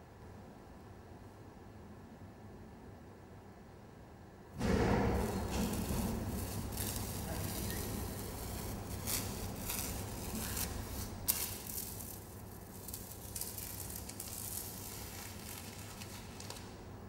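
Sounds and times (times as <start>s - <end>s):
hand rubbing masking tape: 4.6s - 16.8s.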